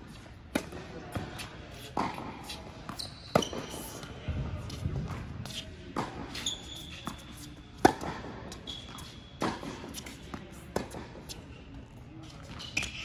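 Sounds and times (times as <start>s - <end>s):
rackets striking tennis ball: 0.5s - 11.2s
shoes squeaking on court: 1.1s - 13.0s.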